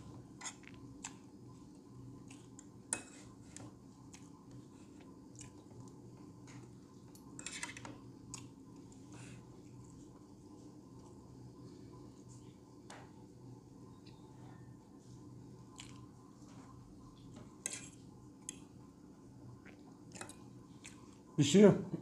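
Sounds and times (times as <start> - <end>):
faint steady hum: 0.0 - 22.0
chewing: 3.5 - 6.0, 8.3 - 8.6, 15.7 - 16.1, 19.6 - 21.2.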